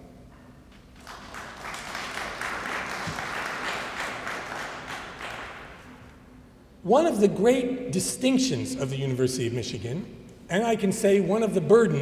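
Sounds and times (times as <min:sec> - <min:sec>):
audience applauding: 0:01.0 - 0:06.0.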